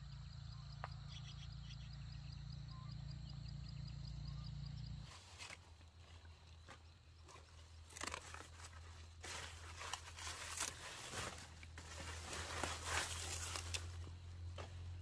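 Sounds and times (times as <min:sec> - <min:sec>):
rustling and crackling with snaps: 0:07.3 - 0:14.1.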